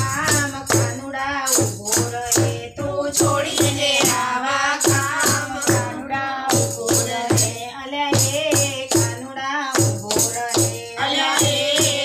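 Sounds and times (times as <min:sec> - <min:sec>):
hand percussion beat: 0:00.0 - 0:12.0
women singing together: 0:00.0 - 0:12.0
rhythmic hand clapping: 0:09.8 - 0:12.0.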